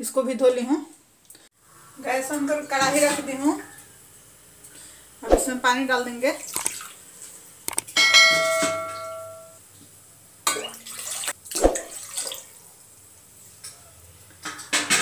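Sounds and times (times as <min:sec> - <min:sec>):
water pouring and splashing: 0:06.4 - 0:07.4, 0:10.4 - 0:12.6
sharp click: 0:06.6 - 0:06.8, 0:07.7 - 0:08.0
bell-like ding: 0:08.0 - 0:09.6.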